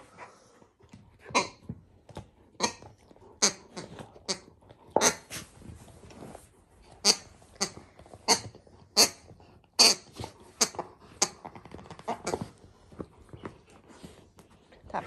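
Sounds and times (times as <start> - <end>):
puppy chewing and ripping plush toy: 1.3 - 14.7.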